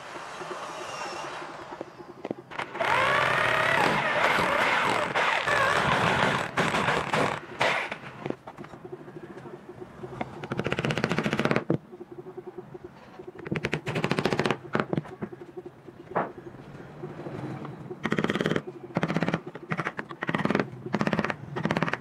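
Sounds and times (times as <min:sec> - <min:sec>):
electric drill boring into wood: 0:02.5 - 0:08.0.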